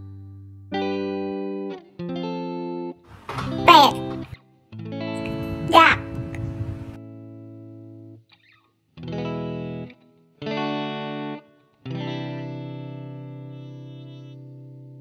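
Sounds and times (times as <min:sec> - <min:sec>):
distorted electric guitar chords: 0:05.1 - 0:07.0.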